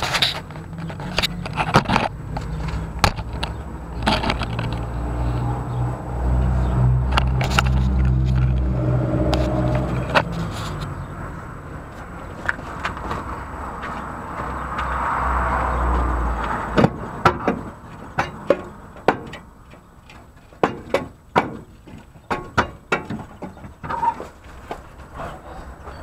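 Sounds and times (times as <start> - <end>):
steady rumbling: 0.0 - 26.0
exhaust pipe knocking on metal: 20.6 - 21.7.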